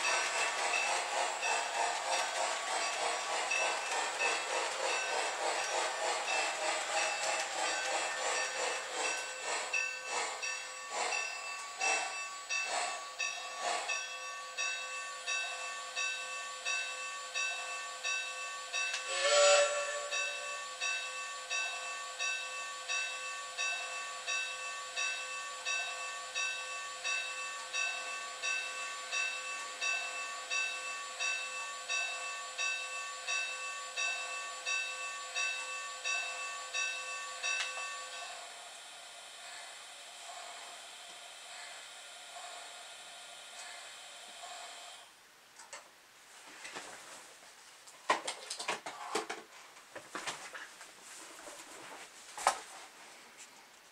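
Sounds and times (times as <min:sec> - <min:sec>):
toy steam locomotive chuffing: 0:00.0 - 0:45.2
locomotive whistle blast: 0:19.0 - 0:20.8.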